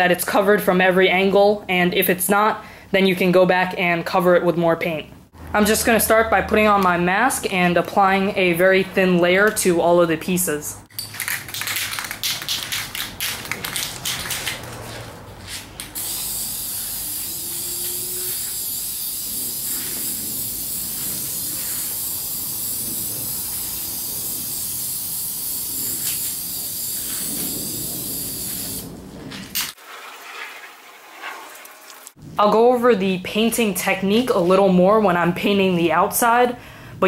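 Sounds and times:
aerosol spray can hissing: 16.0s - 28.9s.

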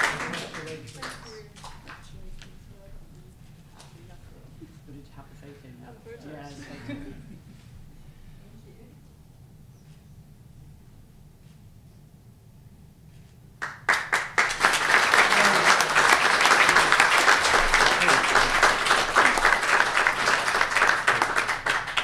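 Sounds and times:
people applauding: 0.0s - 2.2s, 13.6s - 22.0s.

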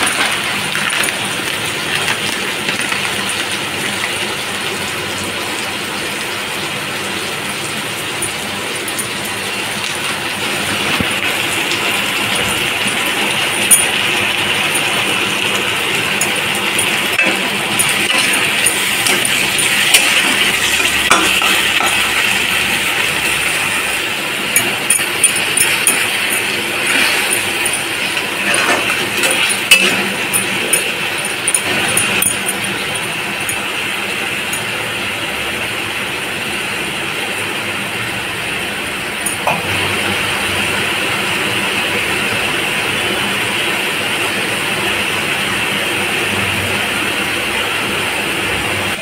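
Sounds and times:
vegetables sizzling in oil: 0.0s - 49.0s
metal spatula scraping a pan: 17.2s - 22.3s, 24.6s - 32.6s.

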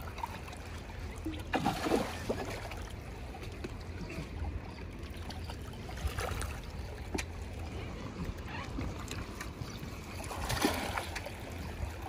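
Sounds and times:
water splashing against boat: 0.0s - 12.0s.

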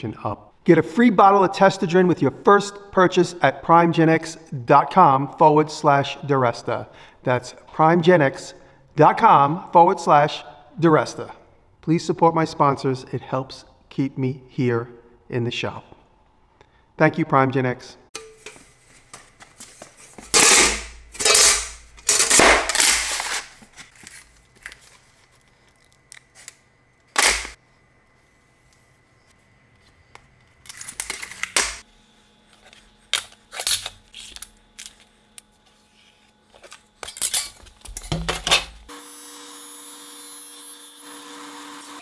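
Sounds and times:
tools clacking on metal sheet: 18.2s - 18.6s, 20.2s - 23.4s
loud sharp cracks: 27.2s - 27.6s.

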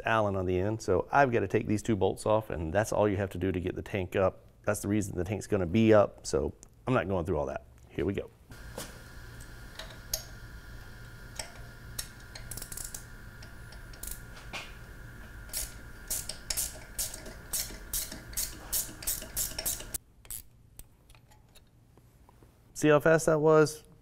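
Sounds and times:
hand ratchet clicking: 9.4s - 10.4s, 11.3s - 21.4s.

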